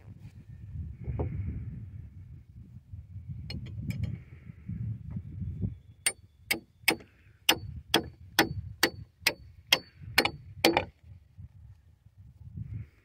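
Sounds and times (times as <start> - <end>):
hammer striking steel hardware: 6.5 - 10.9.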